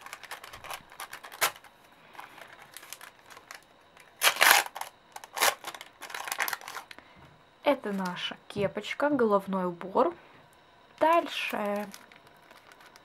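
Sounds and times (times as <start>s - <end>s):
paper packet crinkling: 0.0s - 7.0s, 11.0s - 13.0s
paper tearing: 4.2s - 6.8s.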